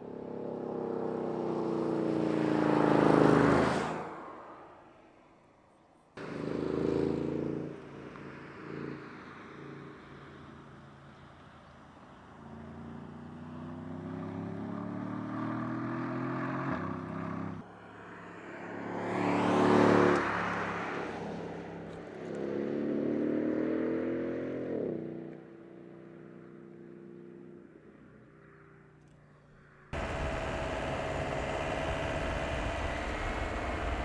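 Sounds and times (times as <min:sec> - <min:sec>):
car passing by loudly: 0:00.8 - 0:05.0, 0:13.7 - 0:24.7, 0:29.9 - 0:34.0
car engine accelerating hard: 0:06.2 - 0:09.8, 0:30.0 - 0:34.0.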